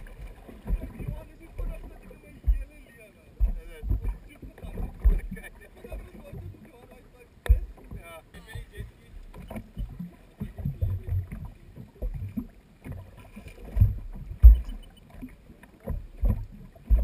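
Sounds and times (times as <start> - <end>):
waves slapping against hull: 0.0 - 17.0.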